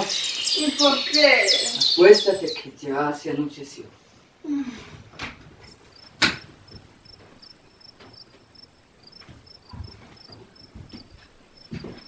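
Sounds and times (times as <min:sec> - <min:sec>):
cricket chirping: 0:05.8 - 0:12.0
sharp knock: 0:06.2 - 0:06.5.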